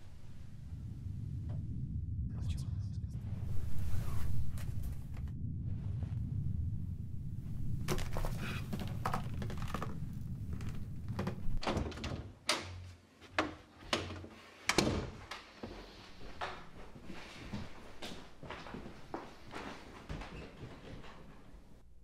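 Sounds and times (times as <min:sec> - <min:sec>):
low hum: 0:00.0 - 0:11.8.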